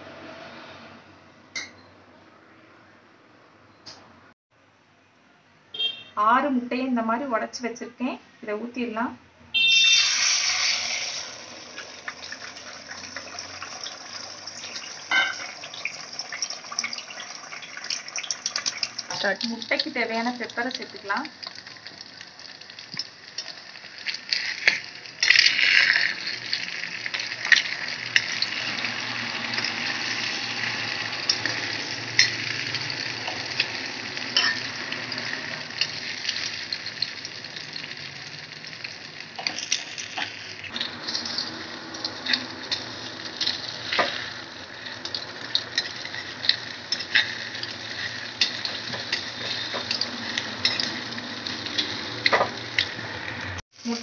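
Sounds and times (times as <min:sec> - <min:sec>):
eggs sizzling in oil: 0:09.6 - 0:54.0
metal spatula scraping a pan: 0:24.0 - 0:36.5, 0:41.0 - 0:52.6.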